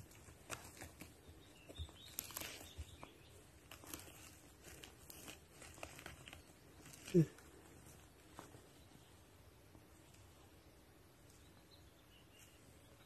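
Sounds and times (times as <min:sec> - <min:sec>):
rustling in leaf litter: 0:00.0 - 0:08.8.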